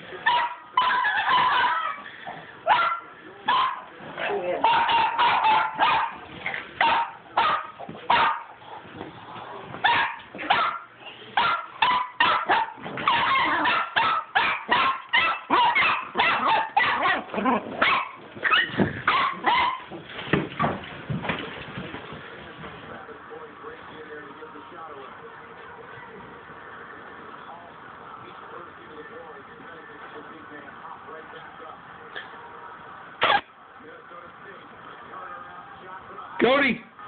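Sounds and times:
small dog barking: 0.2 - 2.0, 2.7 - 3.9, 4.6 - 6.2, 6.8 - 8.6, 9.8 - 19.9.

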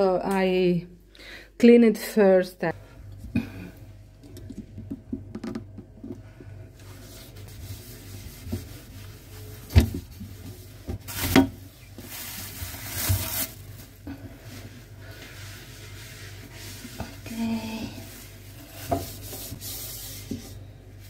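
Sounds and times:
sponge wiping glass shelf: 6.8 - 11.1, 14.4 - 21.0
plastic bag rustling: 9.0 - 14.8.

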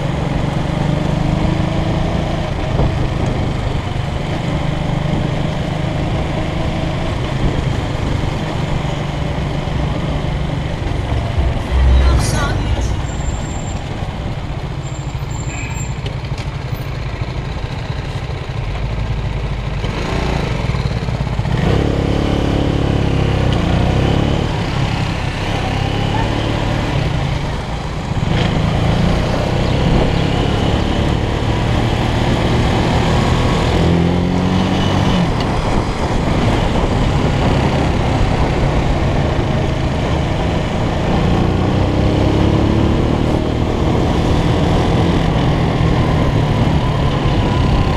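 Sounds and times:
motorcycle engine running: 0.0 - 34.2.

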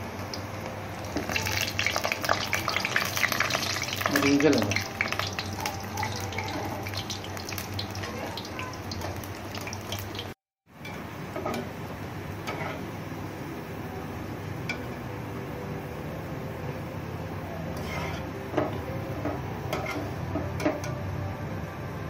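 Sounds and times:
food deep-frying in hot oil: 0.0 - 13.0.

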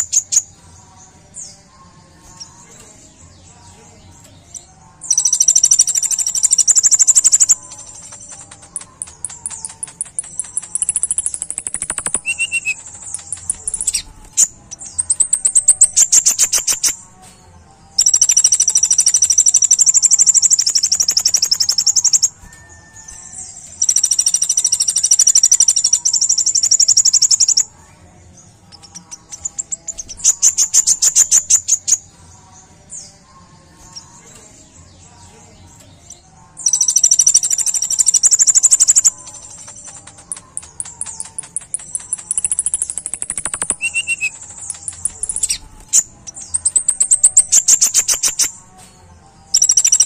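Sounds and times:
bird singing high trills: 4.4 - 17.0, 36.0 - 48.7, 49.5 - 50.0.

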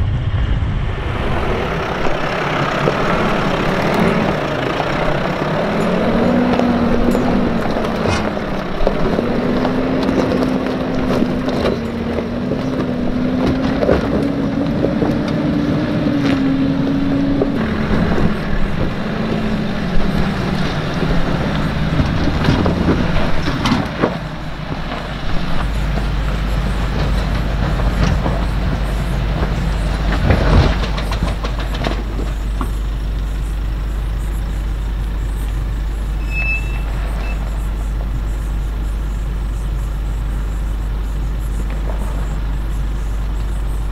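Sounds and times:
deep rumble: 0.0 - 43.9
vehicle engine climbing: 0.0 - 43.9
stones knocking under tyres: 2.8 - 36.1.

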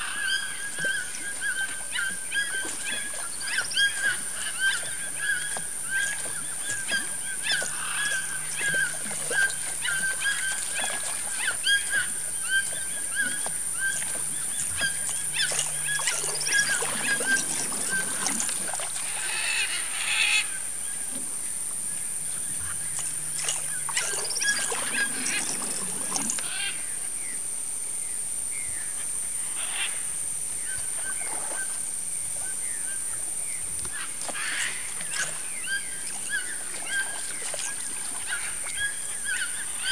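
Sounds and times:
birds chirping: 0.0 - 18.7, 22.3 - 26.6
water splashing: 0.0 - 20.1, 22.2 - 26.7, 33.9 - 39.9
insect drone: 0.0 - 39.9.

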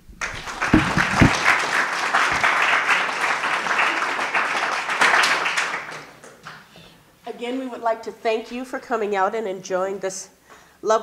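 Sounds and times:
low thumps: 0.0 - 1.5
audience applauding: 0.0 - 6.4.

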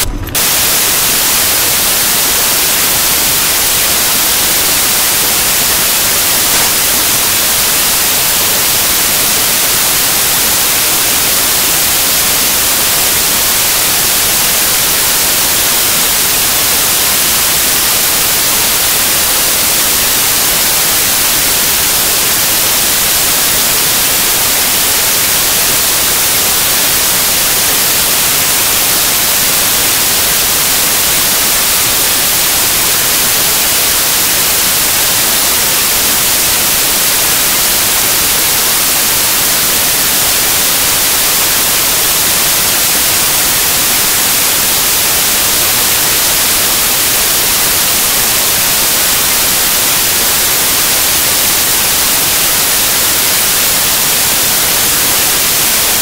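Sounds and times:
static hiss: 0.0 - 56.0.

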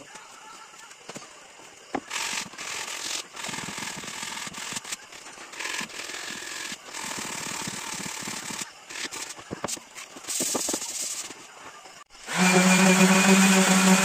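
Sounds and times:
sandpaper rasping on wood: 9.0 - 11.4, 12.3 - 14.0.

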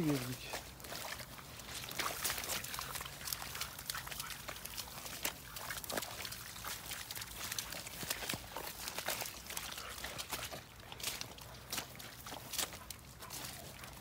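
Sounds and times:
footsteps splashing through puddles: 0.0 - 14.0
grass rustling: 0.0 - 14.0.

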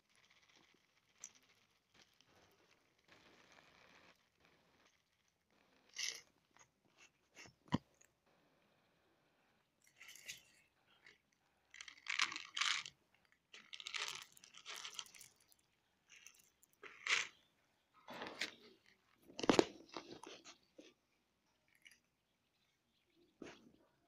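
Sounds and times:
cats crunching dry kibble: 0.0 - 8.1, 9.8 - 17.5, 18.1 - 21.0, 21.7 - 22.1.

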